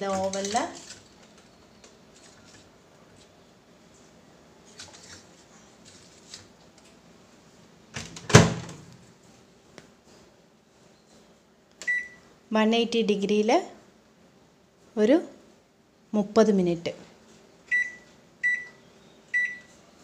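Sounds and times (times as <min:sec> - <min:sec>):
oven door slamming: 0:08.0 - 0:08.8.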